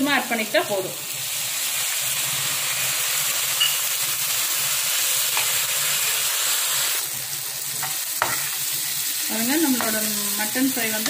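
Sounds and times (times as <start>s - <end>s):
meat sizzling in a pan: 0.0s - 11.0s.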